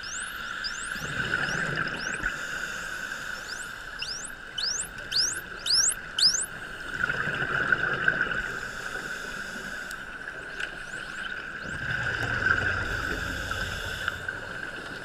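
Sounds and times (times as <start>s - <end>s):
dolphins whistling underwater: 0.0s - 6.7s
underwater hiss: 2.2s - 3.9s.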